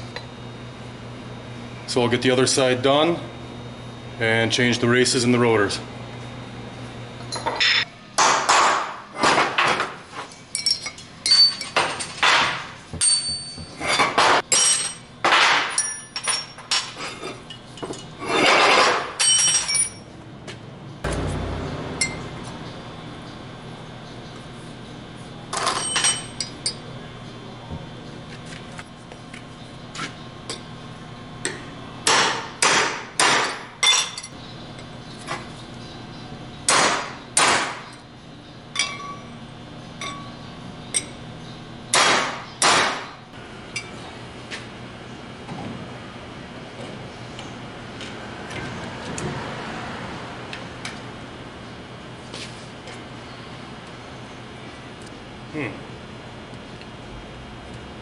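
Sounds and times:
hammer striking steel: 0:21.1 - 0:22.5.

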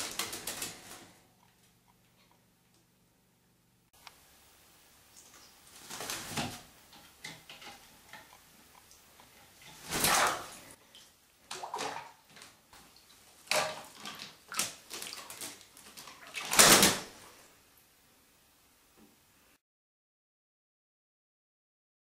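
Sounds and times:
wings beating: 0:00.0 - 0:01.2
parrot splashing in water: 0:09.6 - 0:17.1.

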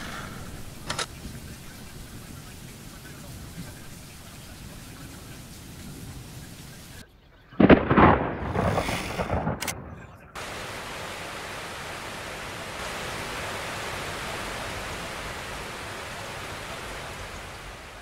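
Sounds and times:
steady hiss: 0:00.0 - 0:18.0
loud rumble: 0:07.6 - 0:18.0.

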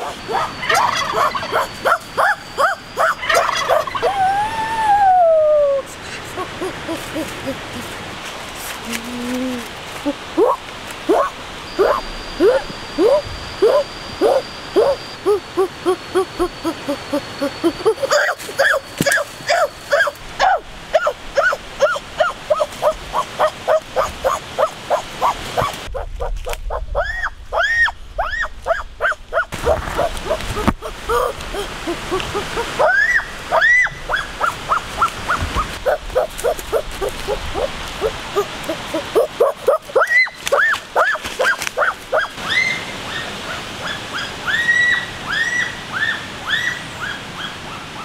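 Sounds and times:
rapid yelping calls: 0:00.0 - 0:04.6, 0:06.1 - 0:07.9, 0:10.4 - 0:47.6.

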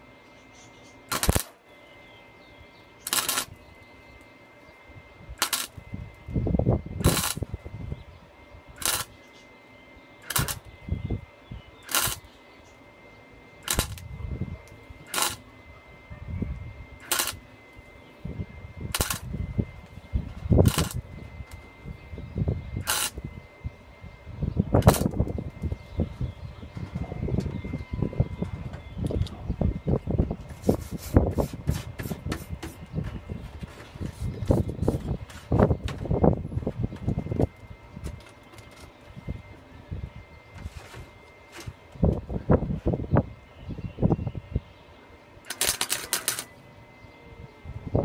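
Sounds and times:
welder arc crackling: 0:01.1 - 0:01.6, 0:02.9 - 0:04.4, 0:05.3 - 0:07.8, 0:08.7 - 0:09.5, 0:10.2 - 0:11.2, 0:11.8 - 0:12.4, 0:13.6 - 0:15.5, 0:17.0 - 0:18.0, 0:18.7 - 0:21.7, 0:22.8 - 0:23.3, 0:24.7 - 0:25.8, 0:45.4 - 0:46.6.

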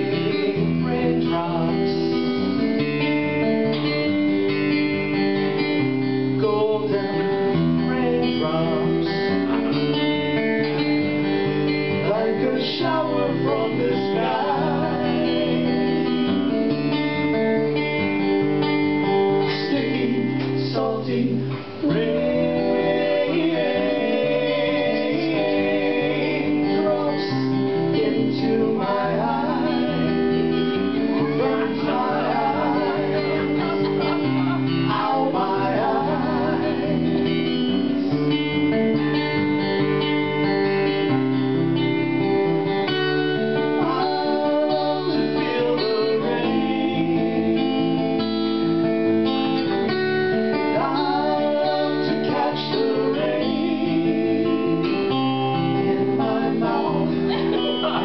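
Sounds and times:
person singing: 0:00.0 - 0:04.0, 0:06.3 - 0:10.0, 0:11.9 - 0:16.4, 0:19.4 - 0:39.5, 0:43.3 - 0:48.2, 0:50.3 - 0:58.0
acoustic guitar: 0:00.0 - 0:58.0.

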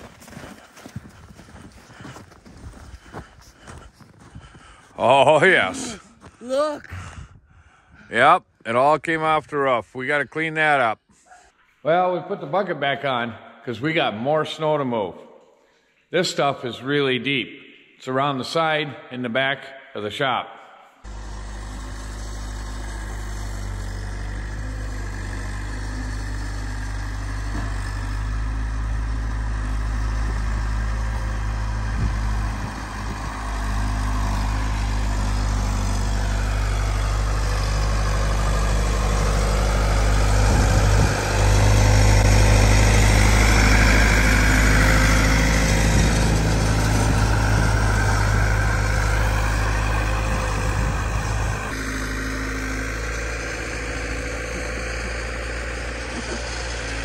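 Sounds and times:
skid steer engine running: 0:00.0 - 0:06.6, 0:21.0 - 0:57.0.

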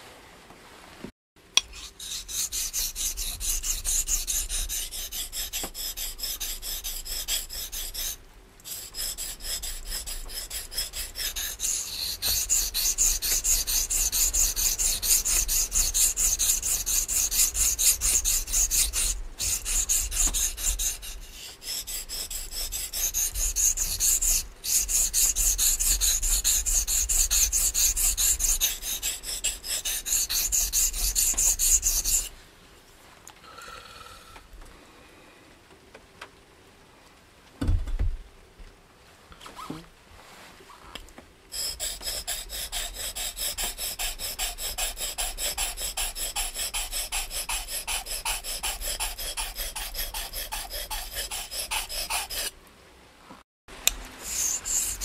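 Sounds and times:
knife scraping on water stone: 0:01.6 - 0:32.3, 0:41.5 - 0:52.5, 0:54.2 - 0:55.0.

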